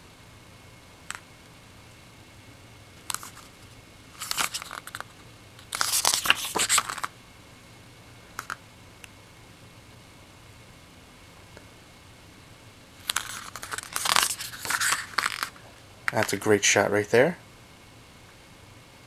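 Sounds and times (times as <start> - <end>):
paper pages rustling: 3.1 - 3.6, 4.2 - 7.1, 13.0 - 15.6.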